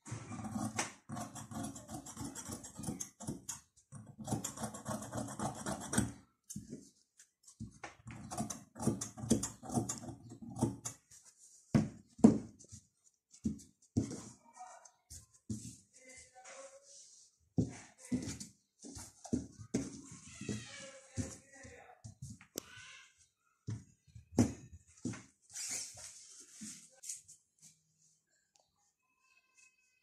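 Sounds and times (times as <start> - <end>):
shears cutting fabric: 0.0 - 3.5.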